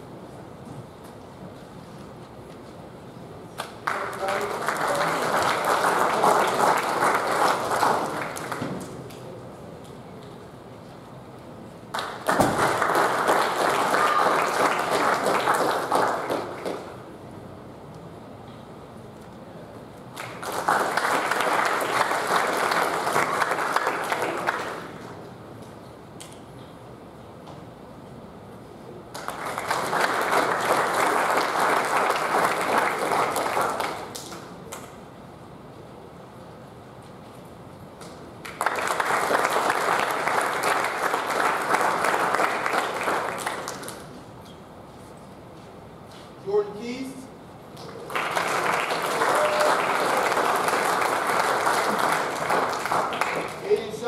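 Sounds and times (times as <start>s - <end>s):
audience applauding: 3.6s - 8.7s, 11.9s - 17.0s, 20.1s - 25.1s, 29.1s - 34.5s, 38.4s - 44.1s, 47.8s - 54.0s.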